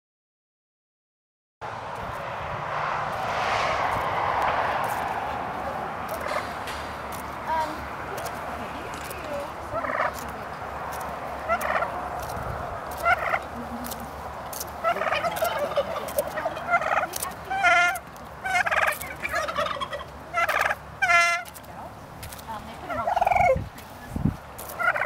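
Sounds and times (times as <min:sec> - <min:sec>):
turkeys gobbling: 0:06.1 - 0:07.3, 0:09.7 - 0:21.6, 0:22.9 - 0:24.1, 0:24.7 - 0:25.0.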